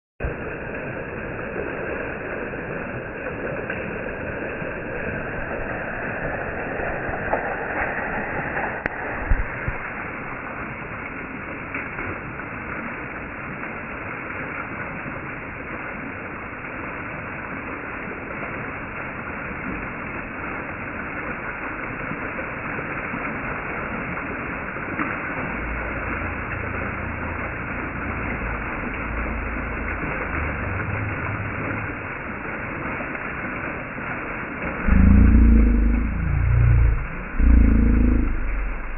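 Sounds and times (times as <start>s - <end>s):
small waterfall splashing: 0.2s - 36.1s
low rumble: 2.7s - 11.4s, 25.8s - 32.5s, 34.8s - 38.9s.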